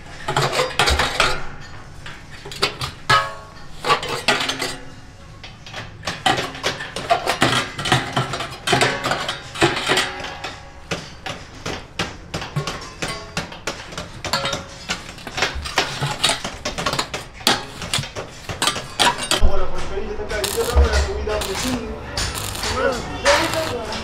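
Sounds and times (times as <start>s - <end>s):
arc welding buzz: 20.4s - 24.0s.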